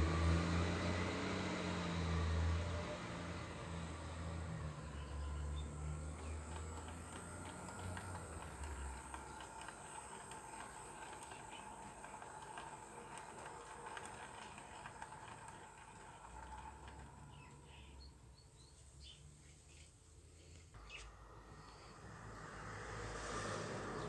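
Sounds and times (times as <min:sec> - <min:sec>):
faint motor whine: 0:00.0 - 0:24.0
low hum: 0:00.0 - 0:24.0
model train wheels clicking: 0:04.7 - 0:18.1.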